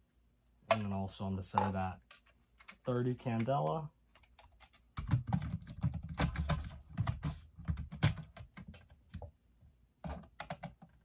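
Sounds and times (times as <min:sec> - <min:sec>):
plastic speaker clicks and rattles: 0:00.7 - 0:09.3, 0:10.0 - 0:11.0.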